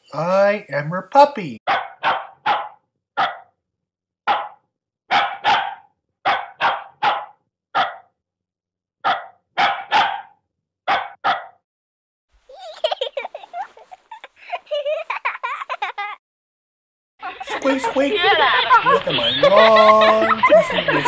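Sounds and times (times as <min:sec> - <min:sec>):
dog barking: 0:01.7 - 0:03.5, 0:04.3 - 0:08.1, 0:09.0 - 0:11.6.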